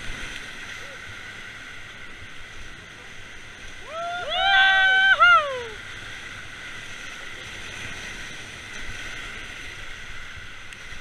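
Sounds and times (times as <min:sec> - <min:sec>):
river rapids rushing: 0:00.0 - 0:11.0
person whooping: 0:03.8 - 0:05.8.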